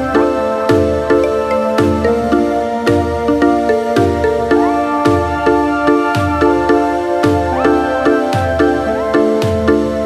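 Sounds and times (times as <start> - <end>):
background music with steady pulse: 0.0 - 10.0.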